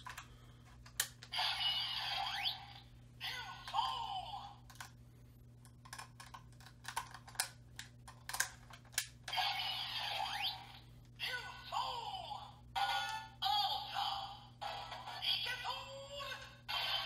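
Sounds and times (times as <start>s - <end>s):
electronic toy sound effect: 1.3s - 4.4s, 9.3s - 12.0s, 12.8s - 17.0s
plastic toy clicks: 5.8s - 9.1s.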